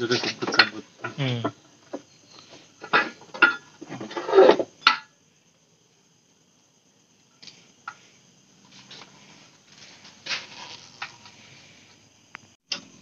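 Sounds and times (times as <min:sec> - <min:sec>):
hands working on exhaust parts: 0:00.0 - 0:05.1.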